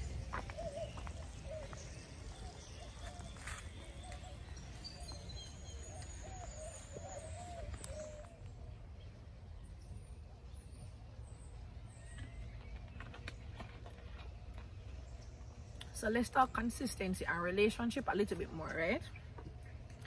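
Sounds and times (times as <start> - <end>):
bird calling: 0.0 - 9.1
low outdoor rumble: 0.0 - 20.0.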